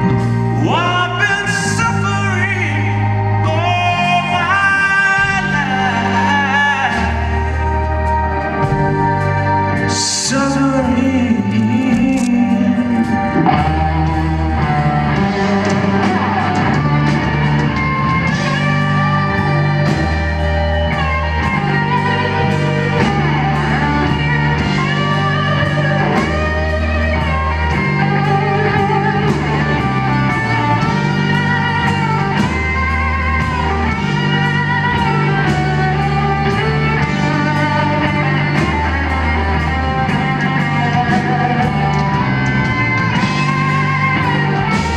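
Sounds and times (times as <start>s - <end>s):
bass guitar: 0.0s - 44.9s
drums: 0.0s - 44.9s
electric guitar solo: 0.0s - 44.9s.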